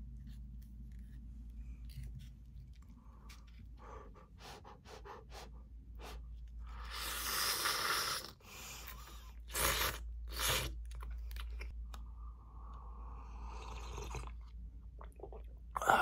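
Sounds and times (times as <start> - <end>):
light chewing: 0.2 - 3.9
person slurping noodles: 6.8 - 10.8, 13.4 - 14.4.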